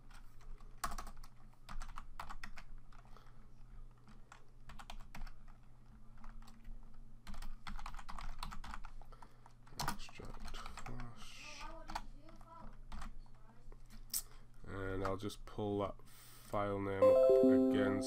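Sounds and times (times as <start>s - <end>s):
computer keyboard typing: 0.0s - 3.1s, 4.0s - 11.1s, 11.9s - 13.2s.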